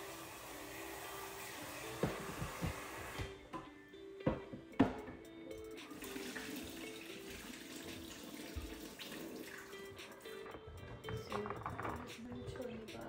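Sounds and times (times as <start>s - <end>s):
tap running into sink: 1.9s - 5.2s, 5.8s - 12.2s.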